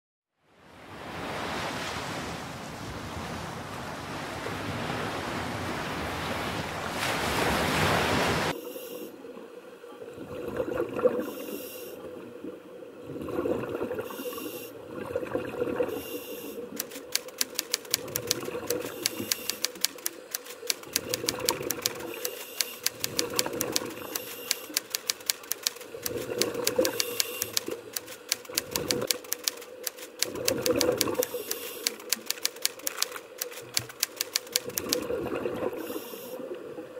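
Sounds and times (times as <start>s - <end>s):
typewriter key clicks: 16.8s - 35.1s.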